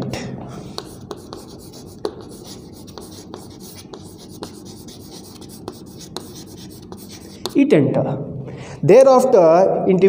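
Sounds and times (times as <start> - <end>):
chalk scraping on chalkboard: 0.5 - 7.6
chalk tapping on board: 0.5 - 7.6.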